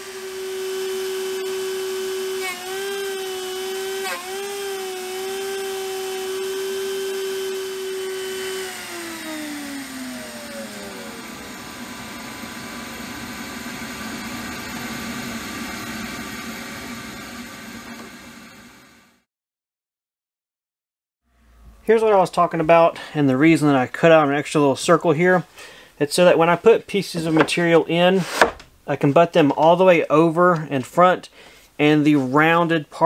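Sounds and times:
router spindle whining: 0.0 - 19.0.

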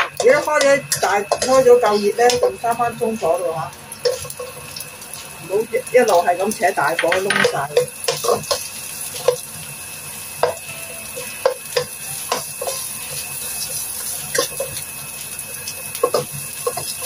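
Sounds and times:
spatula scraping and tapping pan: 0.0 - 2.6, 4.0 - 4.6, 6.9 - 9.4, 10.4 - 13.2, 15.9 - 17.0
onions sizzling in oil: 0.0 - 17.0.

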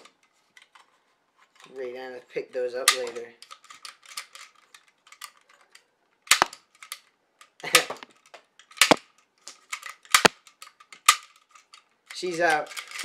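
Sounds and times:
toy disc shooter snaps: 6.3 - 6.6, 8.8 - 9.1, 10.0 - 11.3.

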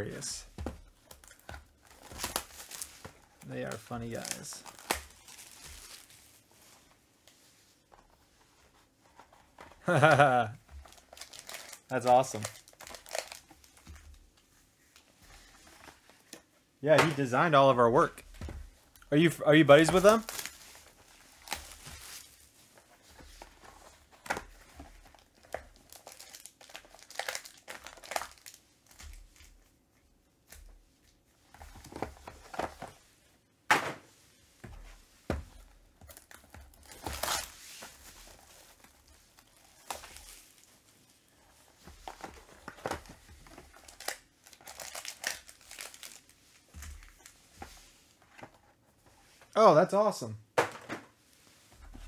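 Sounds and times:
plastic wrap crinkling and tearing: 1.2 - 6.4, 9.9 - 13.8, 19.7 - 22.6, 25.1 - 29.4, 36.1 - 41.4, 42.0 - 47.4.

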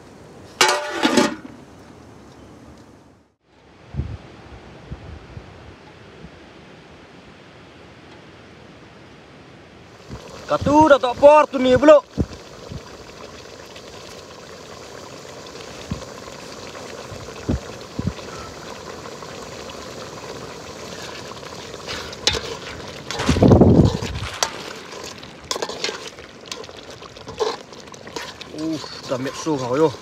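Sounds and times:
curry bubbling in pot: 9.9 - 30.0.

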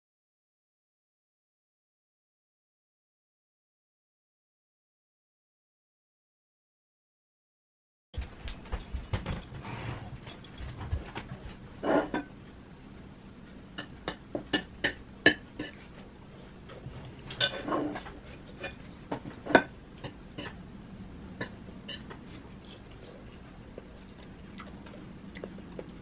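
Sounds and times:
cutlery clinking on ceramic plate: 10.2 - 11.1, 17.3 - 20.6.

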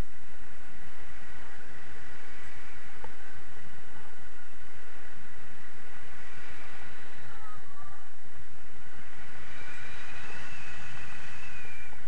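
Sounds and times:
faint thin whistling tones: 0.0 - 12.0
wind rushing over microphone: 0.0 - 12.0.

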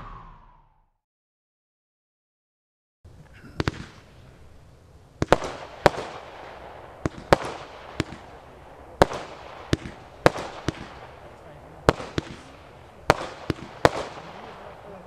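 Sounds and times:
firework bangs: 3.3 - 15.0.

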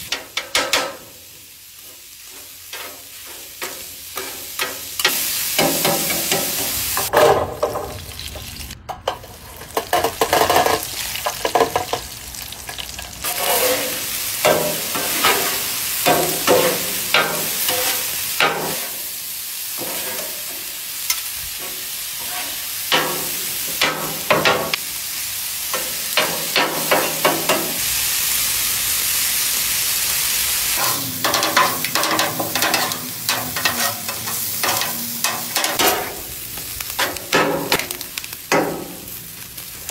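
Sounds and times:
meat sizzling on a griddle: 0.0 - 7.1, 9.4 - 39.9
metal spatulas scraping and clacking: 13.2 - 18.9, 19.8 - 23.2, 30.8 - 36.1.

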